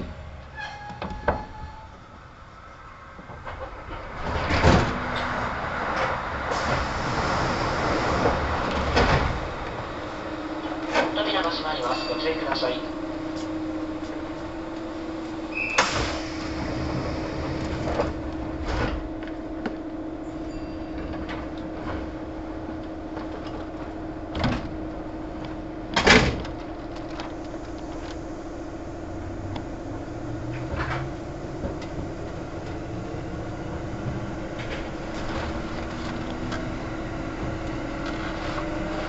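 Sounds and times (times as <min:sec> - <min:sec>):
train equipment hum: 0:00.0 - 0:39.0.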